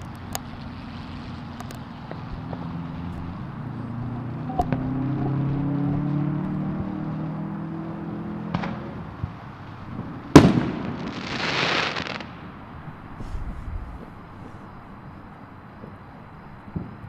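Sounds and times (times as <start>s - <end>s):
faint firework pops: 0.0s - 3.4s, 4.6s - 5.4s, 8.5s - 12.4s, 15.8s - 16.0s, 16.7s - 17.0s
firework bang: 0.0s - 3.4s, 4.5s - 5.4s, 8.5s - 12.5s, 13.1s - 14.6s
firework hissing crackle: 0.0s - 17.0s.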